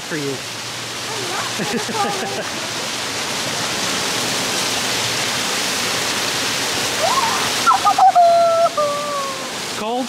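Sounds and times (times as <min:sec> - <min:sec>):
waterfall rushing: 0:00.0 - 0:10.0
high-pitched voice calling: 0:07.0 - 0:09.6.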